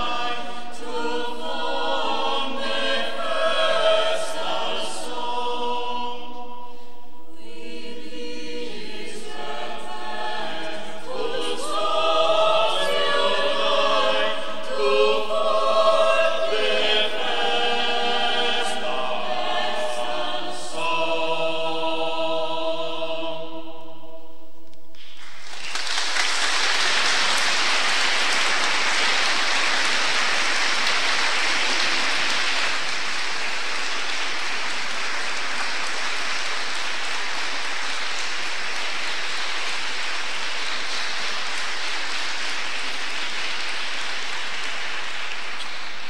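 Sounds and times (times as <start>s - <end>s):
choir singing a cappella: 0.0s - 24.5s
audience applause: 25.0s - 46.0s.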